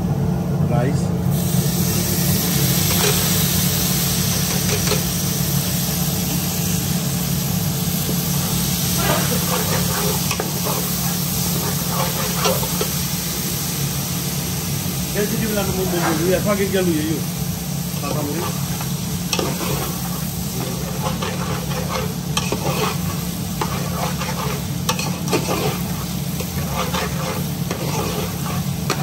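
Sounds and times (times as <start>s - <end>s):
rice sizzling in hot oil: 1.3s - 29.0s
metal spoon scraping a pot: 9.0s - 12.9s, 18.4s - 29.0s.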